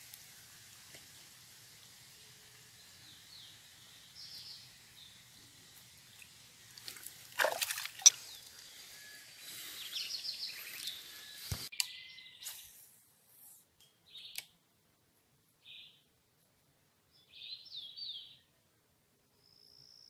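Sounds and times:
hand splashing pond water: 6.8 - 8.6.

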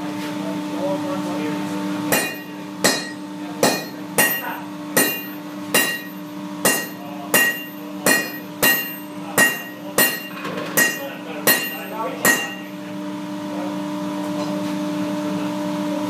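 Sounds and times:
sledgehammer striking iron on anvil: 2.1 - 12.8.

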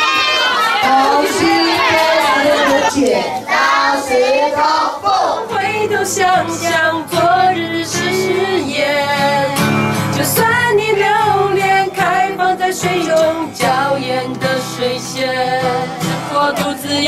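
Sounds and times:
woman singing folk song: 0.8 - 17.0
strummed acoustic guitar: 5.0 - 17.0.

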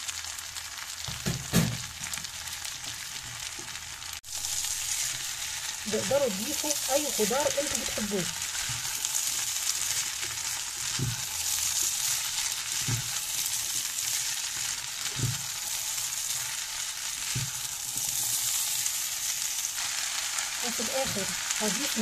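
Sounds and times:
food sizzling in a pan: 0.0 - 22.0
spatula thumps in pan: 1.0 - 2.2, 10.8 - 11.4, 12.8 - 13.2, 15.1 - 15.6, 17.2 - 17.6.

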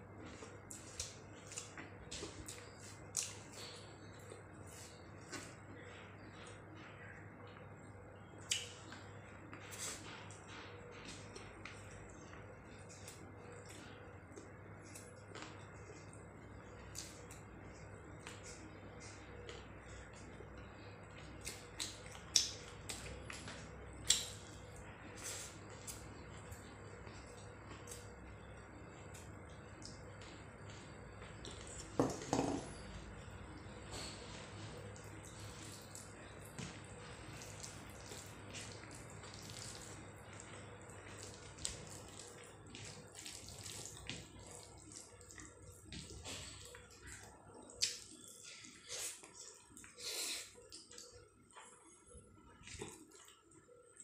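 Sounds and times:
wet eating clicks and smacks: 0.3 - 3.8, 8.4 - 10.4, 16.8 - 20.3, 21.1 - 32.0, 34.9 - 51.5
fingers squishing wet food: 34.6 - 51.6.

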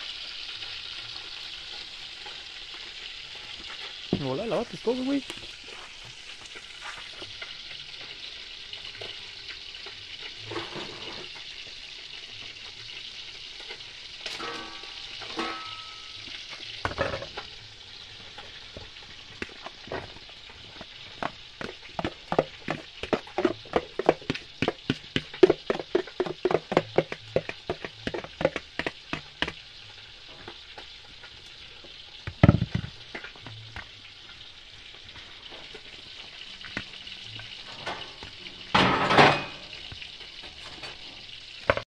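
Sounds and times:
food sizzling in oil: 0.0 - 41.8
spoon tapping and scraping bowls: 18.7 - 29.6.

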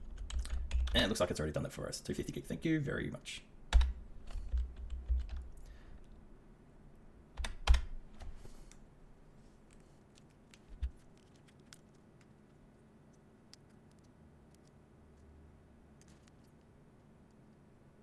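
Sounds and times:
computer keyboard key presses: 3.7 - 5.4, 7.4 - 7.9.

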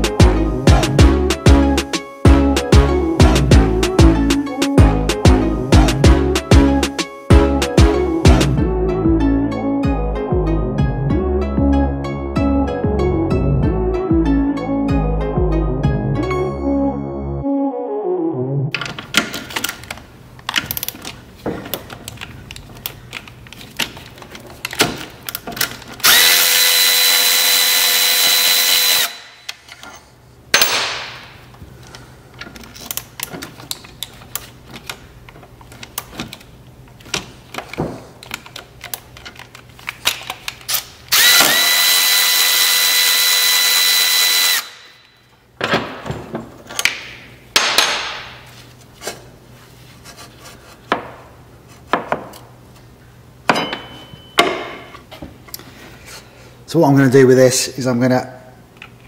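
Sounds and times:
power tool high whine: 26.0 - 29.4, 41.1 - 44.9
metal parts clinking: 32.4 - 41.0.

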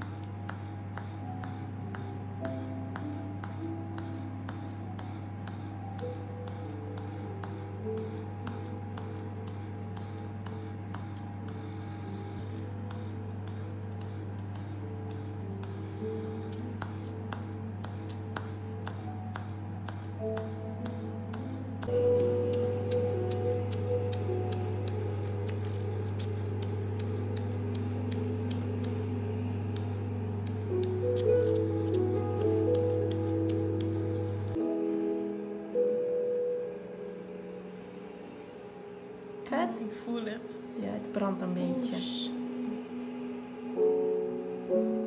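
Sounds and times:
machine electrical hum: 0.0 - 45.0
sharp clicking of facial pen: 12.4 - 34.6.

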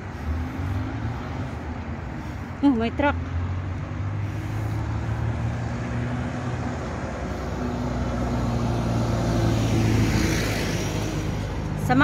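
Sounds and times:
steady traffic noise: 0.0 - 12.0.

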